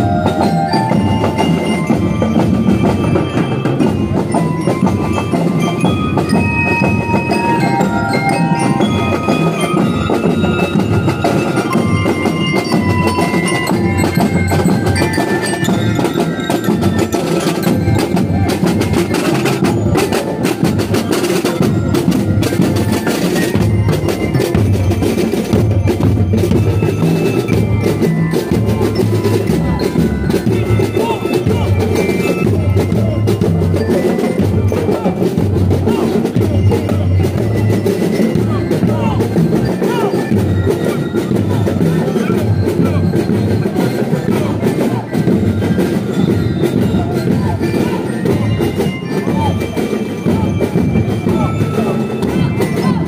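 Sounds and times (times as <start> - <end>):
bell lyres playing march melody: 0.0 - 53.0
snare and bass drums: 0.0 - 53.0.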